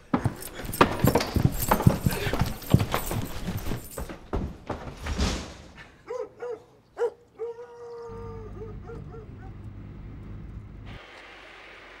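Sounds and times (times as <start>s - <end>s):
car engine rumble: 8.1s - 11.0s.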